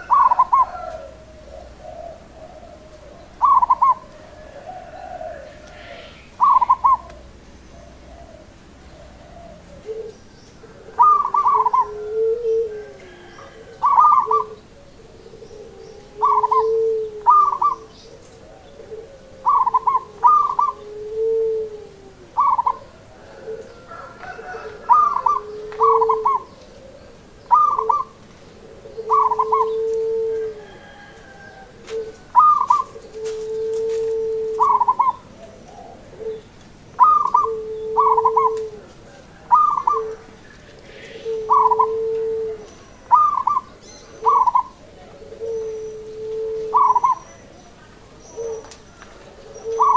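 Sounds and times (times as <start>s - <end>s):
dove cooing: 0.0s - 49.9s.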